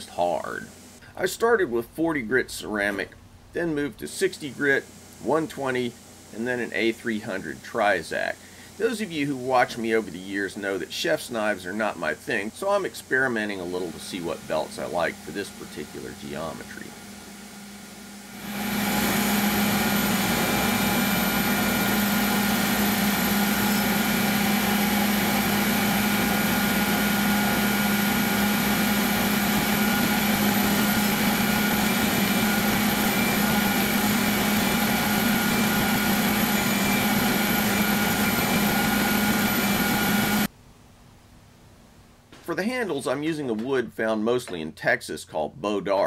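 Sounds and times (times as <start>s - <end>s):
belt grinder whining: 18.3s - 40.5s.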